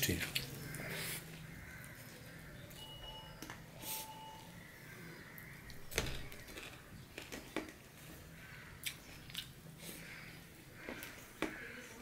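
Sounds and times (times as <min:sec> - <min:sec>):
close-up chewing: 0:08.8 - 0:11.8.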